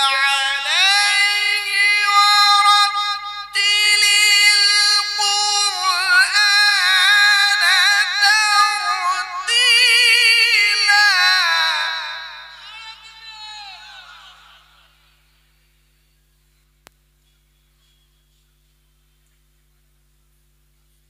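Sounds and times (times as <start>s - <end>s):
man chanting melodically: 0.0s - 15.4s.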